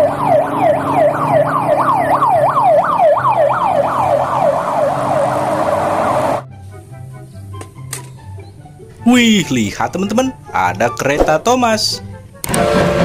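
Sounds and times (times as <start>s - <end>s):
ambulance siren yelping: 0.0s - 6.4s.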